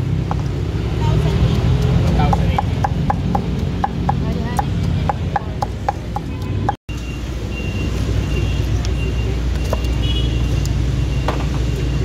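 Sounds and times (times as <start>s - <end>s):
street traffic rumble: 0.0s - 12.0s
cleaver chopping on wooden block: 1.7s - 6.3s.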